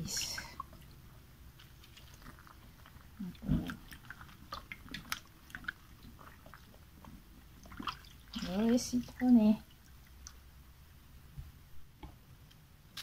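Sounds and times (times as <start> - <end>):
wet squelching of scrubbing: 0.0 - 10.4.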